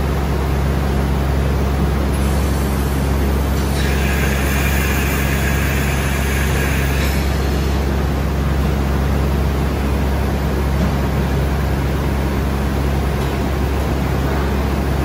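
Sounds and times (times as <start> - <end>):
high machine whine: 0.0 - 10.6
boring mill humming with hiss: 0.0 - 15.0.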